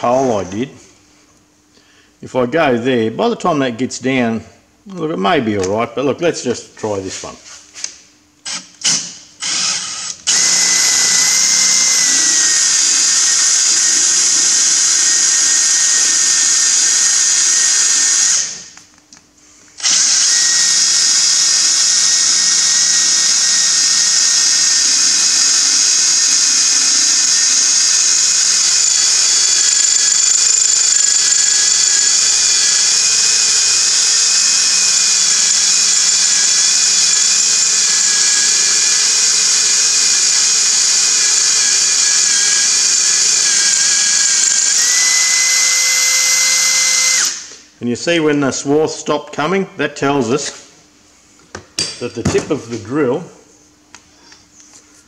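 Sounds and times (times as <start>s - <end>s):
cordless drill boring into steel: 8.5s - 18.6s, 19.8s - 47.5s.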